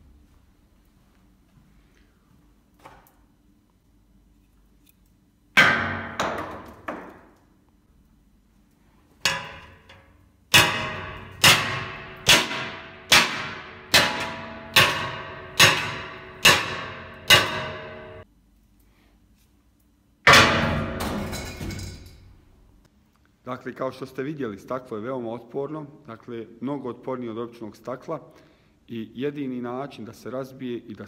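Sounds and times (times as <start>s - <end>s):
metal pipe striking glass panel: 9.2s - 18.2s, 20.3s - 22.0s.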